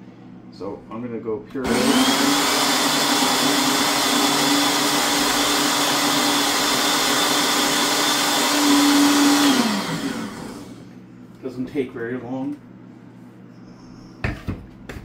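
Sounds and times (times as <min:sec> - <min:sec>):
blender running: 0:01.6 - 0:10.9.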